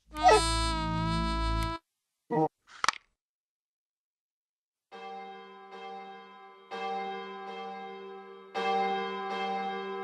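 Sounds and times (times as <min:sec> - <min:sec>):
church bells ringing: 0:05.0 - 0:10.0.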